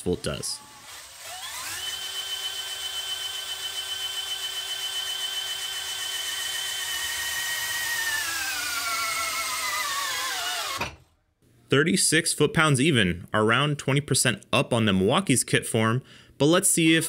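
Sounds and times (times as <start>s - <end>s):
cordless drill motor whine: 0.4s - 11.0s.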